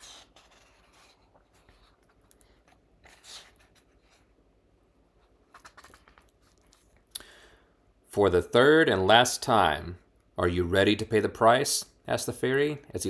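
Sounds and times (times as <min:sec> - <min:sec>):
book pages turning: 0:00.0 - 0:04.3, 0:05.2 - 0:07.1.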